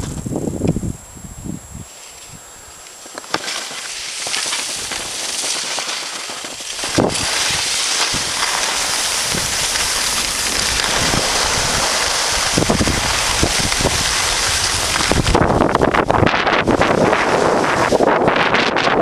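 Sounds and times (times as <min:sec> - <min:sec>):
wind rushing over microphone: 0:00.0 - 0:02.7, 0:06.8 - 0:19.0
skis hissing on snow: 0:01.8 - 0:18.6.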